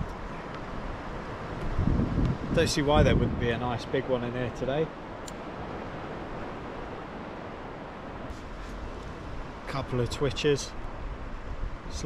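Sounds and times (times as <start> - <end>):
wind and sea noise: 0.0 - 12.0
wind buffeting microphone: 0.0 - 12.0
faint clicks: 5.2 - 5.4.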